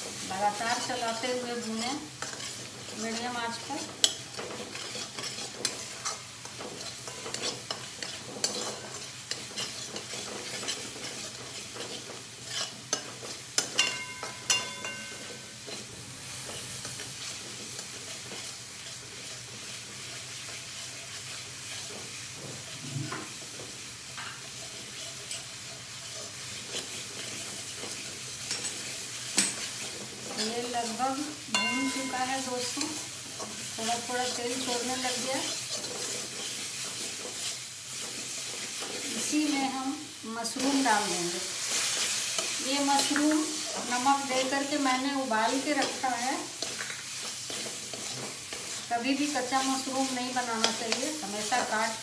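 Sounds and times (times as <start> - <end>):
paste sizzling in oil: 0.0 - 52.0
metal spatula scraping steel pan: 0.7 - 15.8, 24.5 - 39.6, 41.6 - 51.4.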